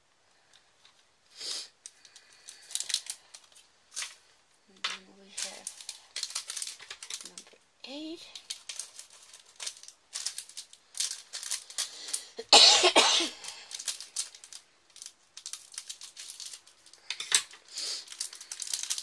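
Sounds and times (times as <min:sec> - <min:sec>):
plastic bag crinkling: 0:01.7 - 0:12.5, 0:13.2 - 0:19.0
person coughing: 0:12.4 - 0:13.4.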